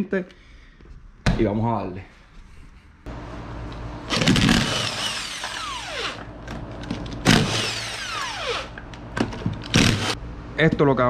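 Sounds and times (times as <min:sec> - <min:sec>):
impact wrench hammering: 0:07.2 - 0:10.2.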